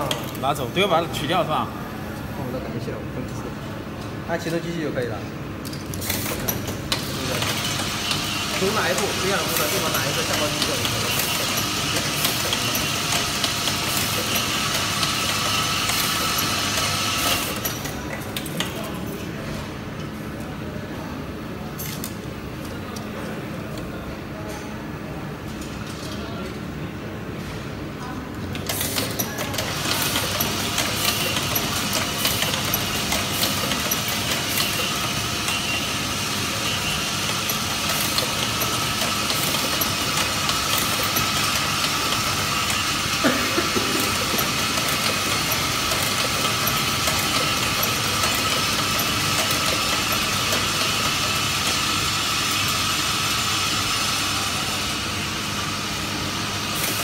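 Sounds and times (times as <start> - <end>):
assembly machine running: 4.4 - 19.0, 28.5 - 57.0.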